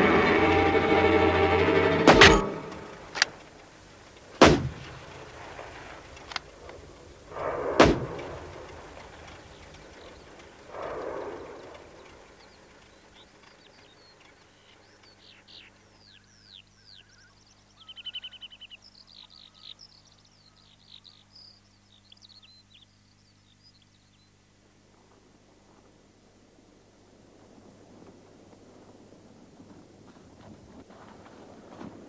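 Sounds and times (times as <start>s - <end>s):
sharp loud bangs: 0.0s - 3.3s, 4.4s - 5.2s, 7.4s - 8.6s
loud steady held tones: 0.0s - 13.2s
birds chirping: 0.0s - 24.5s.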